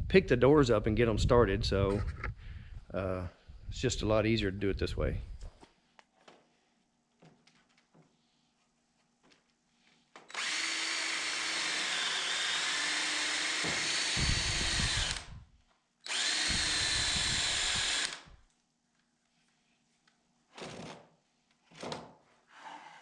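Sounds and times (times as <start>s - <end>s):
cordless drill boring into wood: 10.3s - 15.4s, 16.0s - 18.4s.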